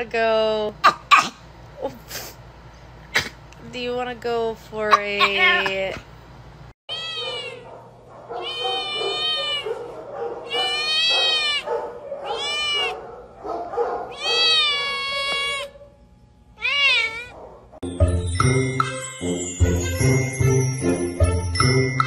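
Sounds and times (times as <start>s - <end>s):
kitten meowing: 6.9s - 7.6s, 8.4s - 9.6s, 10.5s - 11.7s, 12.3s - 13.0s, 14.1s - 15.7s, 16.6s - 17.3s.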